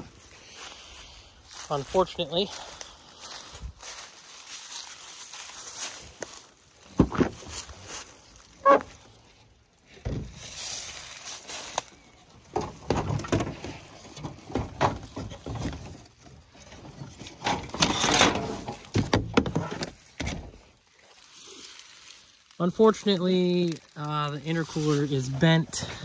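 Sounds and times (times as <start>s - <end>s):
junk knocking and scraping in car: 6.9s - 7.7s, 9.9s - 10.5s, 12.4s - 20.7s.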